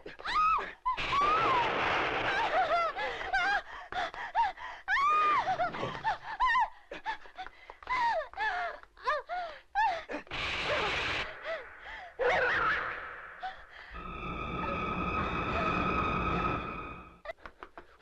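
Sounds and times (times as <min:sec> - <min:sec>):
frightened cries and shouts: 0:00.0 - 0:13.8
long wailing scream: 0:01.0 - 0:02.8.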